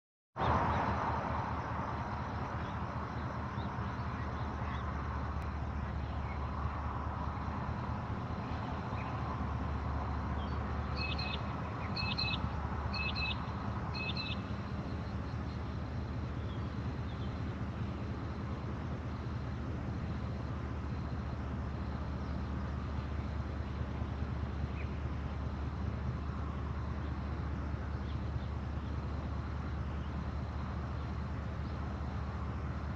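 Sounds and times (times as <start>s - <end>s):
idling diesel locomotives hum: 0.4s - 32.9s
bird calling: 10.3s - 18.0s.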